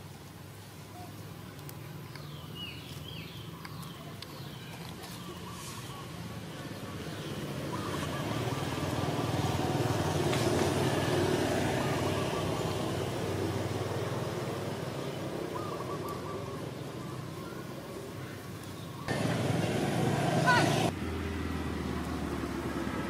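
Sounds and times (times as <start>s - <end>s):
vehicle passing: 5.4s - 18.2s, 19.0s - 23.0s.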